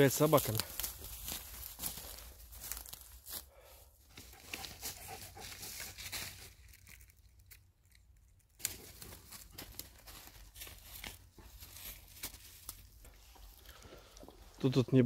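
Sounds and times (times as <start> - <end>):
footsteps rustling dry leaves: 0.0 - 7.4, 8.6 - 13.6
twig snapping: 6.5 - 10.0.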